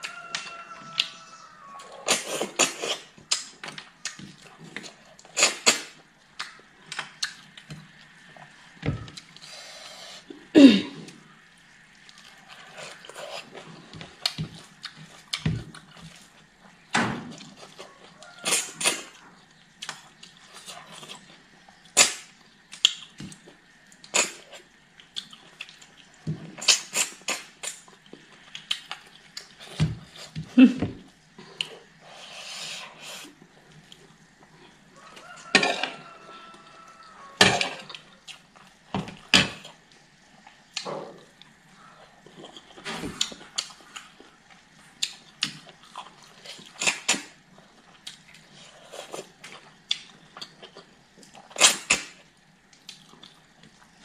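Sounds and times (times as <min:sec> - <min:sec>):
wet lip smacks and chewing: 0:17.4 - 0:29.6.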